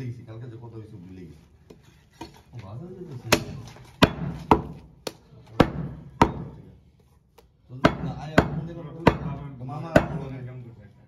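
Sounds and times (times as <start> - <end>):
cleaver chopping on wooden block: 3.3 - 6.6, 7.8 - 10.3.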